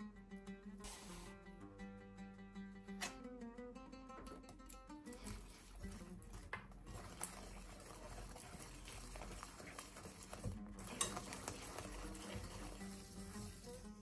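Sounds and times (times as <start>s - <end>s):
whisk beating batter in bowl: 5.1s - 14.0s.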